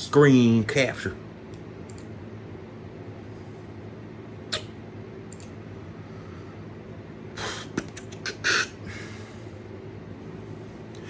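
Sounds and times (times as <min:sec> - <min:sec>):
steady low hum: 0:00.0 - 0:11.0
computer handling clicks: 0:01.5 - 0:02.1, 0:05.3 - 0:05.6.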